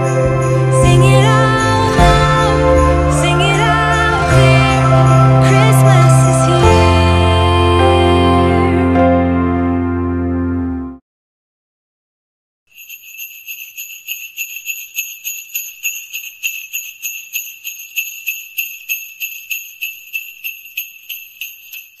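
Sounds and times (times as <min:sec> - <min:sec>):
jingle bells shaken: 0:00.0 - 0:07.2, 0:12.7 - 0:22.0.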